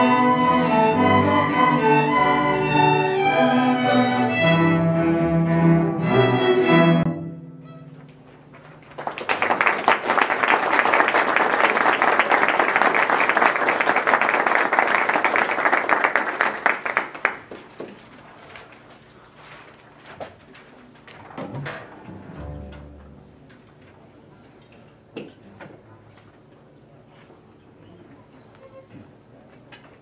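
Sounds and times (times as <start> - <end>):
string orchestra playing: 0.0 - 8.5, 22.1 - 23.5
audience applauding: 8.8 - 18.1.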